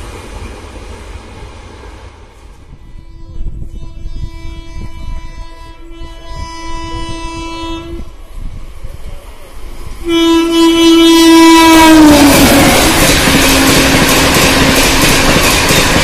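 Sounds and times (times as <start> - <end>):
train rumble: 0.0 - 16.0
locomotive horn blasts: 2.8 - 8.1, 10.0 - 14.8.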